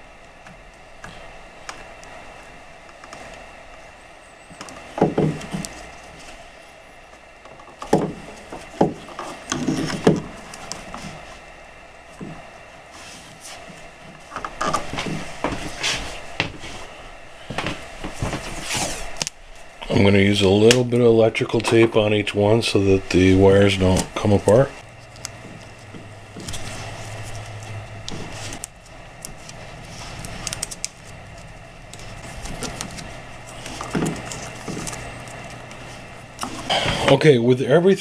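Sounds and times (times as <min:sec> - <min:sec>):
clicks scrapes and rustles: 0:24.9 - 0:37.1
hands twisting plastic wire nuts: 0:25.0 - 0:36.7.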